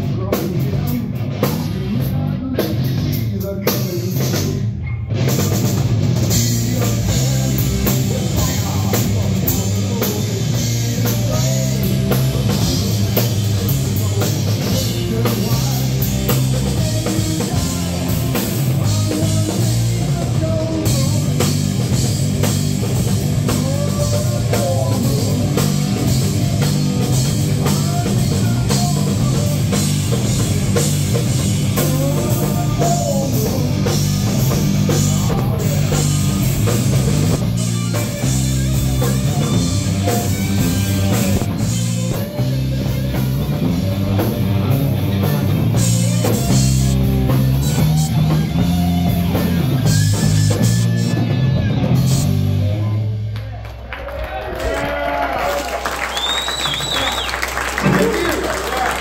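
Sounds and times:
drum kit beat: 0.0 - 53.3, 55.8 - 59.0
distorted electric guitars: 0.0 - 54.4
bass guitar: 0.0 - 59.0
bending guitar lead lines: 4.8 - 53.3.

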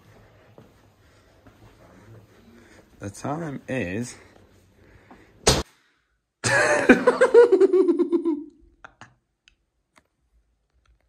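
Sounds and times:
sharp smack: 5.4 - 5.7
man laughing: 6.4 - 9.2.

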